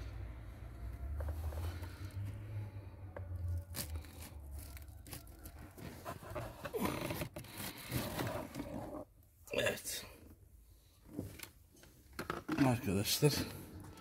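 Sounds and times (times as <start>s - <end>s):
plastic scraping and rustling: 3.4s - 9.1s, 11.0s - 14.0s.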